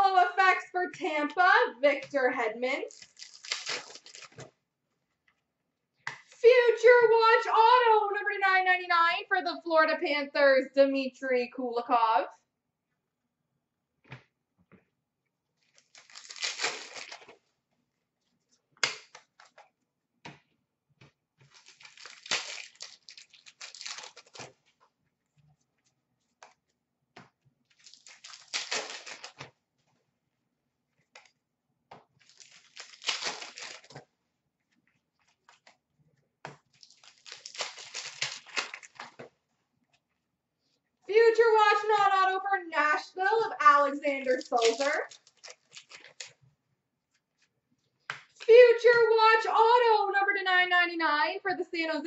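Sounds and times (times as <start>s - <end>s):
cards rustling and sliding: 3.0s - 4.5s, 21.4s - 24.8s, 27.7s - 29.5s, 32.2s - 34.1s, 44.4s - 46.4s.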